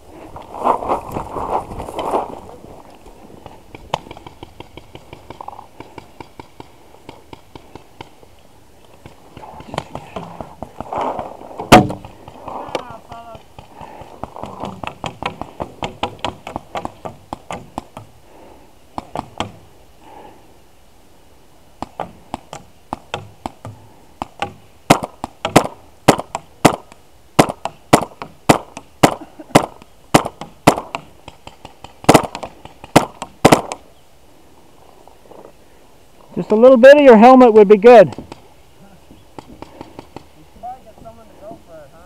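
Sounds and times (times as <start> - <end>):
paintball markers firing: 21.8 - 33.8, 39.4 - 40.3.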